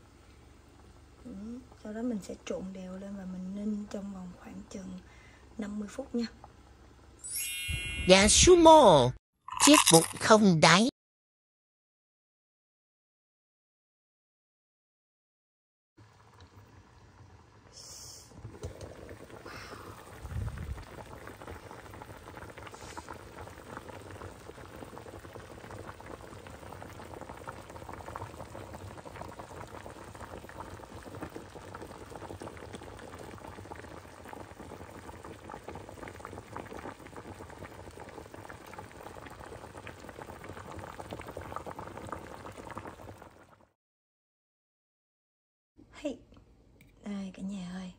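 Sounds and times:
broth simmering and bubbling: 0.0s - 7.2s, 16.0s - 43.8s.

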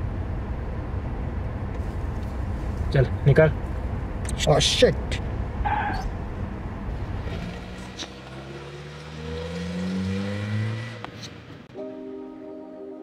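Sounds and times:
car engine accelerating: 0.0s - 11.7s
soft ambient music: 11.7s - 13.0s.

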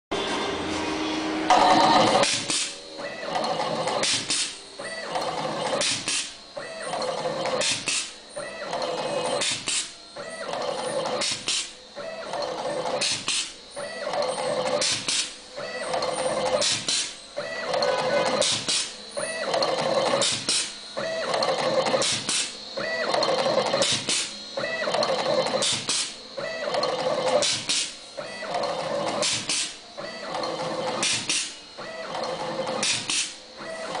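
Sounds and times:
machine motor running: 0.2s - 34.0s
sharp clacks of cutting blades: 7.6s - 8.1s, 20.2s - 20.7s, 22.0s - 22.6s, 32.8s - 33.4s.

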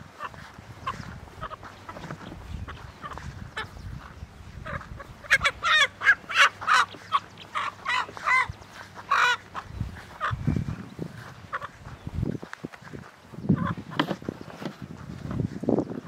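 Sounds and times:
rooster squawking: 0.2s - 3.8s, 4.6s - 10.7s, 11.4s - 11.9s, 13.5s - 14.0s.

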